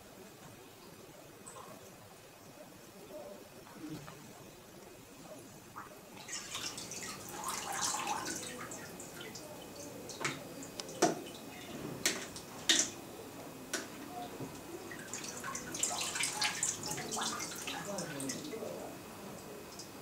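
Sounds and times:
water dripping: 4.2 - 13.1, 13.7 - 20.0
water sloshing and splashing: 5.7 - 9.4, 14.9 - 18.7.

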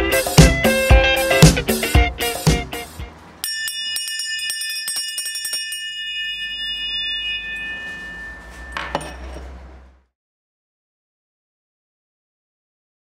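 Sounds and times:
small bell ringing rapidly: 3.4 - 9.6.

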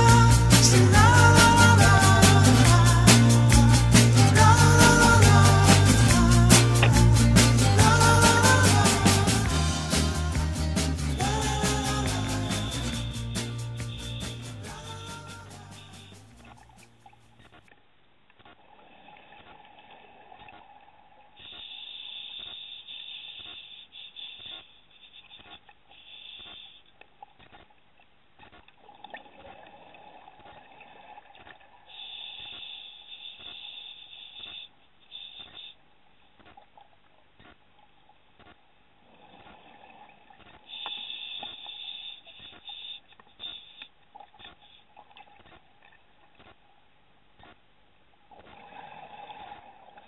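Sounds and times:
regulator breathing hiss: 0.0 - 16.5, 21.4 - 26.8, 31.9 - 35.8, 40.7 - 43.9
regulator hissing breath: 21.4 - 26.8, 31.9 - 35.8, 40.7 - 43.9.

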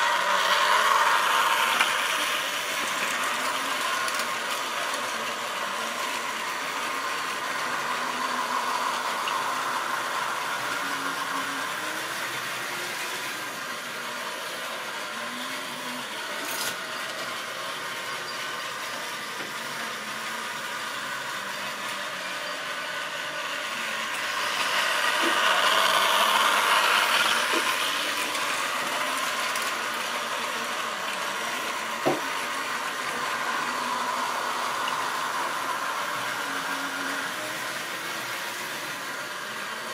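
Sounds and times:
model train wheels rattling on rails: 0.0 - 14.0, 22.6 - 38.5.

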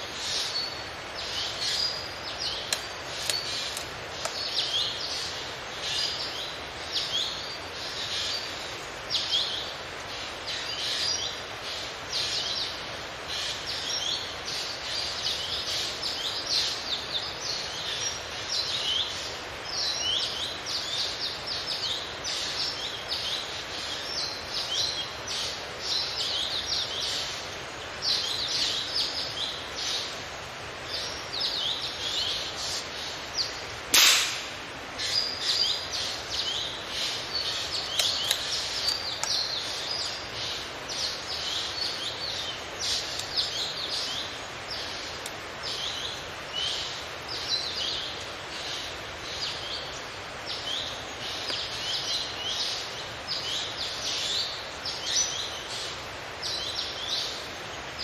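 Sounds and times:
small birds chirping: 0.0 - 58.0
faint click: 2.6 - 4.6, 37.8 - 39.4
gunshot: 33.9 - 34.6.

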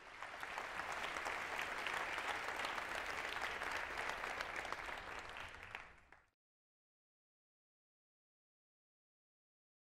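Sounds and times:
audience applauding: 0.0 - 6.3.

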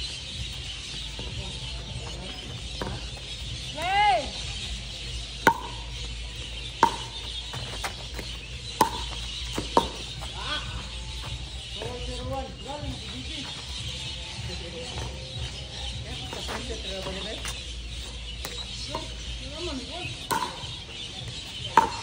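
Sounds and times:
paddles striking plastic ball: 5.5 - 5.8.

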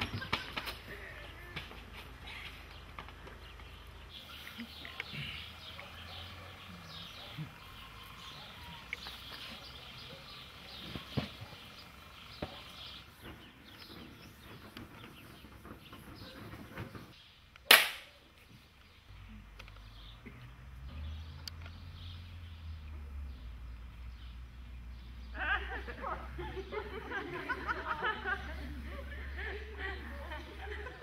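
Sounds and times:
birds chirping: 0.0 - 31.0
loud sharp crack: 17.6 - 18.2.

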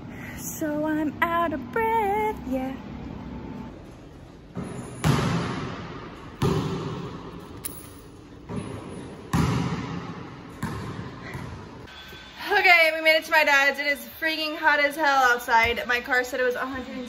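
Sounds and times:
basketball thudding with echo: 4.5 - 7.6, 8.3 - 11.9.

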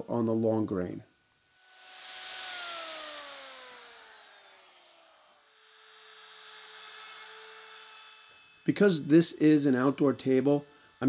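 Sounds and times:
router humming steadily: 1.1 - 11.0
router spinning down: 1.1 - 11.0.

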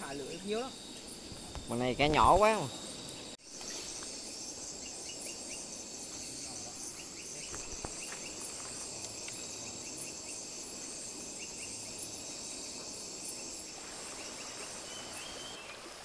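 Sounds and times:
insects trilling: 0.0 - 16.0
pulsing insect call: 0.0 - 16.0.

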